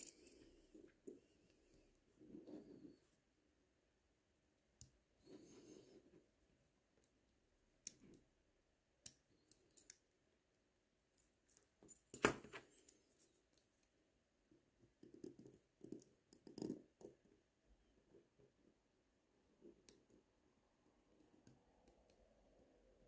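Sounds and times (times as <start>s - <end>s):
metallic clicks and taps of tweezers: 9.0s - 10.0s.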